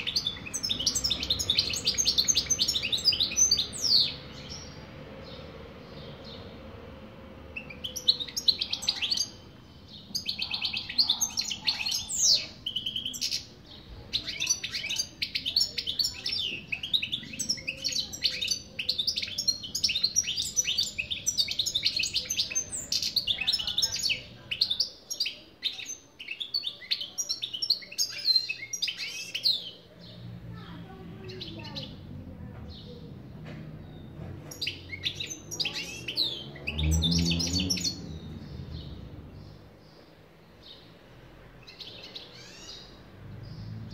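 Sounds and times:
goldfinch twittering song: 0:33.9 - 0:43.8.

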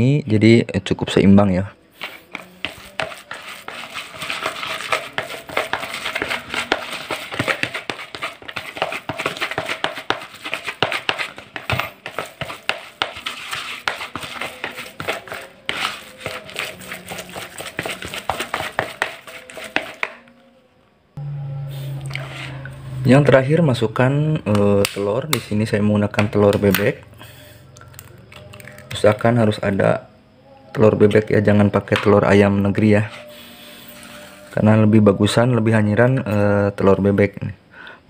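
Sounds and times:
hand kneading crumbly bait: 0:02.0 - 0:20.2.

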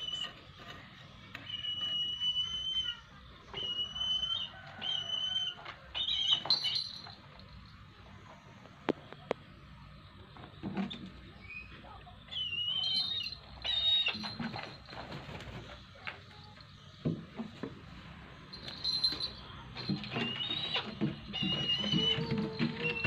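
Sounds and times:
high wavering bird calls: 0:00.0 - 0:07.1, 0:11.4 - 0:14.6, 0:18.6 - 0:23.0.

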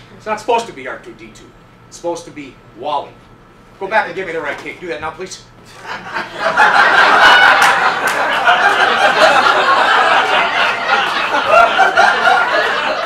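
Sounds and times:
audience laughing: 0:05.7 - 0:13.0.

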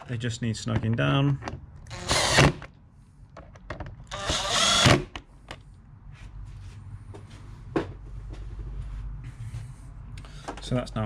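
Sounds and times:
powered screwdriver running: 0:01.9 - 0:02.6, 0:04.1 - 0:05.1.

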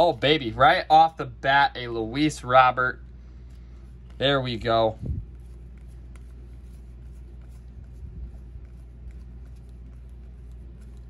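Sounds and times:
steady low hum: 0:00.0 - 0:11.0
papery clicks of cards: 0:05.3 - 0:11.0.

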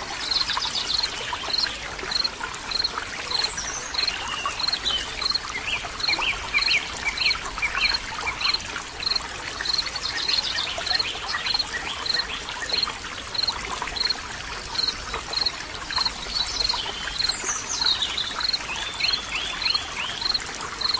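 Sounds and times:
water trickling: 0:00.0 - 0:20.9.

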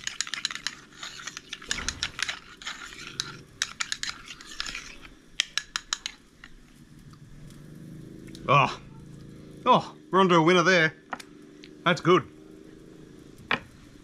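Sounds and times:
spoon scraping sauce: 0:00.0 - 0:06.7
spoon clicking against bowl: 0:05.4 - 0:06.6.

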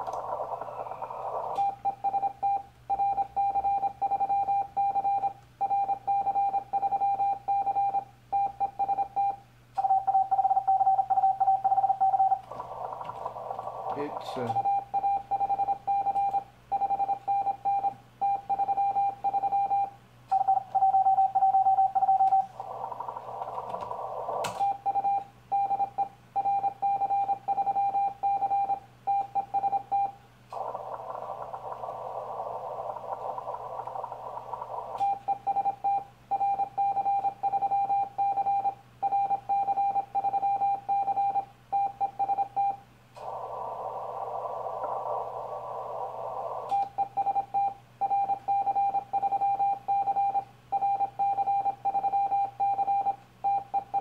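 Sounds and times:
radio receiver hiss: 0:00.0 - 0:01.8, 0:12.0 - 0:14.8, 0:22.0 - 0:24.8, 0:30.5 - 0:35.4, 0:43.0 - 0:47.0
low hum: 0:00.0 - 0:08.6, 0:09.2 - 0:39.3, 0:41.3 - 0:48.3.

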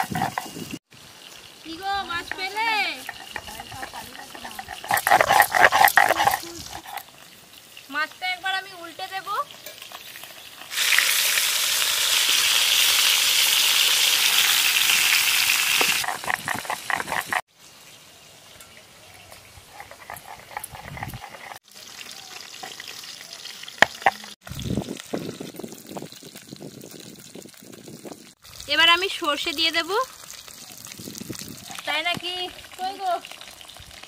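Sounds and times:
spatula scraping: 0:00.0 - 0:00.8, 0:02.3 - 0:07.2, 0:15.7 - 0:17.4, 0:19.5 - 0:21.6
fish sizzling in hot oil: 0:00.0 - 0:19.7, 0:21.5 - 0:34.0.

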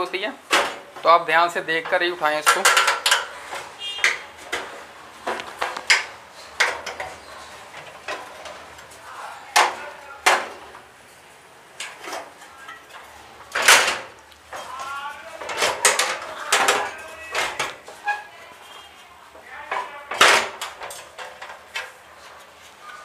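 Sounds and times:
sheet metal cover clanking: 0:01.8 - 0:08.8, 0:11.8 - 0:18.4.

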